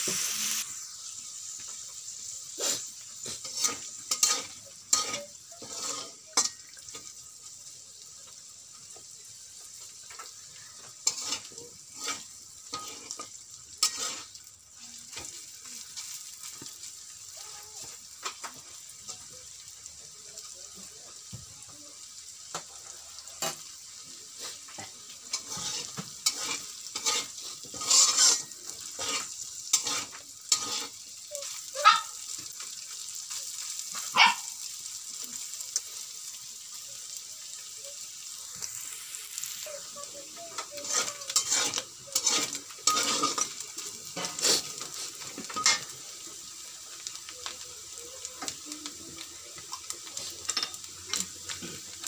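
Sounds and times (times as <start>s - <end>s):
chicken sizzling in a wok: 0.0s - 52.0s
metal spatula scraping a pan: 2.5s - 7.2s, 10.1s - 14.5s, 24.3s - 31.6s, 38.6s - 46.2s, 49.6s - 51.9s.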